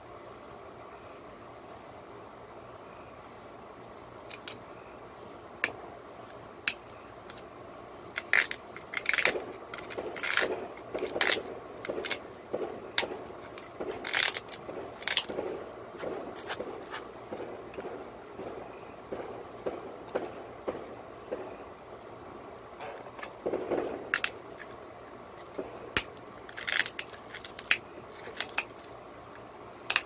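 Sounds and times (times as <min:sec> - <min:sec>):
sharp clicks of stone flaking: 0:08.0 - 0:15.4, 0:25.4 - 0:28.9
tool scraping stone edge: 0:08.0 - 0:15.4, 0:16.0 - 0:17.9.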